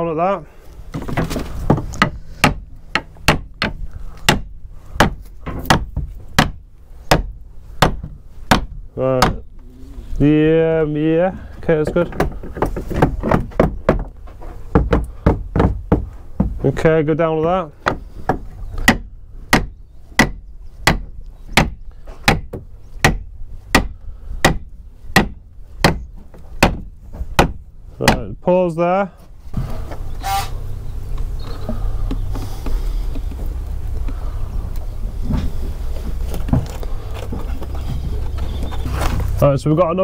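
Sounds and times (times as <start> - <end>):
hammer striking wooden frame: 1.0 - 9.4, 11.8 - 16.7, 17.8 - 28.3.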